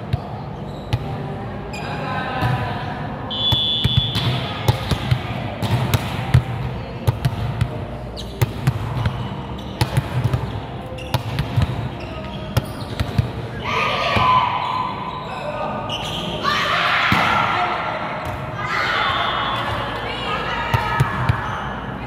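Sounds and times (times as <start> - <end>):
shoe squeak: 0.5 - 1.0, 8.1 - 9.8, 10.9 - 11.3, 11.9 - 13.6, 14.6 - 16.4.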